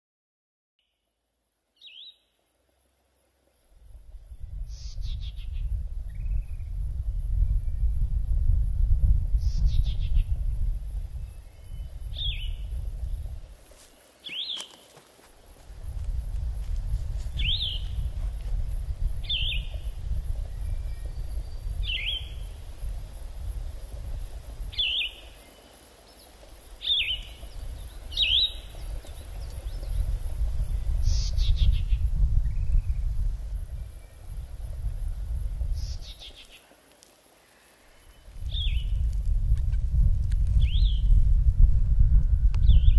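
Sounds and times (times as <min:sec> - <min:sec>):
bird chirping: 0:01.7 - 0:02.4, 0:11.2 - 0:12.8, 0:19.2 - 0:22.6, 0:24.7 - 0:33.1
steady low rumble: 0:38.4 - 0:42.9.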